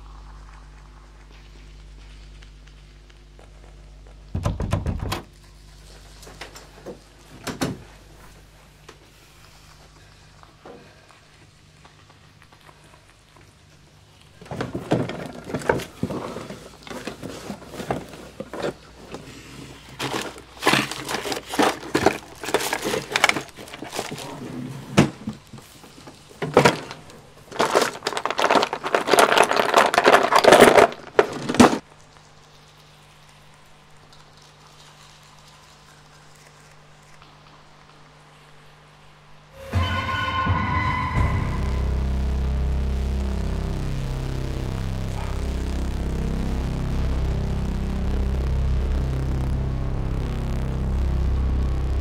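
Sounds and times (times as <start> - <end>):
rummaging through a drawer: 14.5 - 25.3, 26.4 - 31.8.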